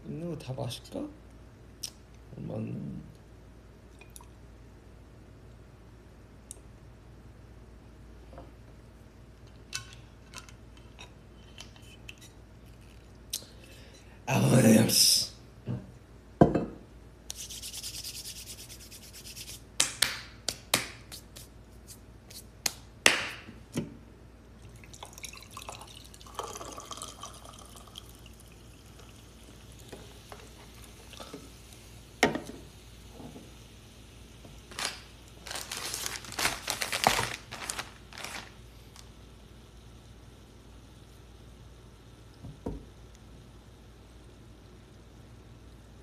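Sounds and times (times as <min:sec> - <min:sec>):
hiss: 0:17.3 - 0:19.6
drink poured into mug: 0:24.6 - 0:31.4
rustling: 0:34.7 - 0:39.0.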